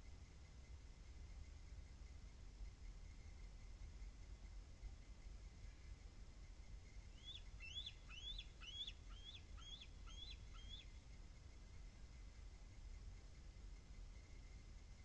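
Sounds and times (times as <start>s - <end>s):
eagle high piping calls: 7.2s - 10.9s.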